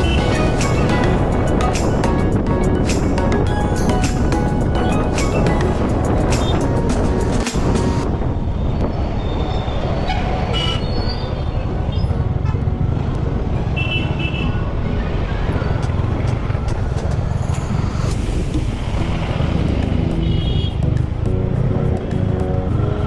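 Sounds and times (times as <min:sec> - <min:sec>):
background music: 0:00.0 - 0:08.3, 0:11.5 - 0:23.0
road and wind rumble: 0:00.0 - 0:23.0.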